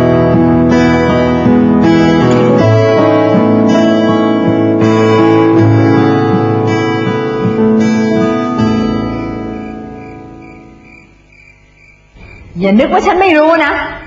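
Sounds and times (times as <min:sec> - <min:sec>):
plucked guitar: 0:00.0 - 0:10.8
sustained piano chords: 0:00.0 - 0:13.2.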